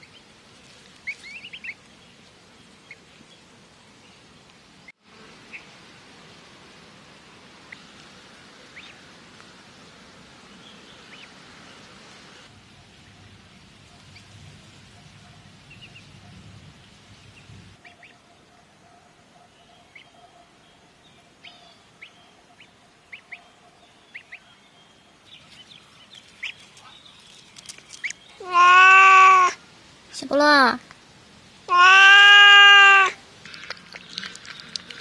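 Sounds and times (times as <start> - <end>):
faint outdoor background noise: 0.0 - 35.0
ducklings peeping: 1.0 - 1.8, 8.6 - 9.0, 11.0 - 11.3, 15.4 - 16.2, 17.2 - 18.2, 22.0 - 23.4, 24.1 - 24.4, 25.4 - 27.0.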